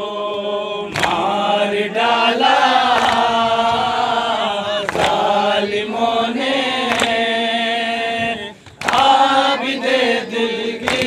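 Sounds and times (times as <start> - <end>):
men chanting a lament: 0.0 - 11.0
hands slapping chests: 0.3 - 1.4, 2.8 - 3.9, 4.8 - 5.4, 6.8 - 7.3, 8.6 - 9.3, 10.8 - 11.0.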